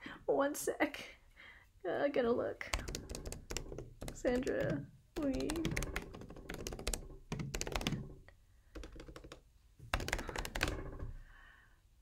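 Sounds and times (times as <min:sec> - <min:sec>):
typing on keyboard: 0:02.7 - 0:11.1.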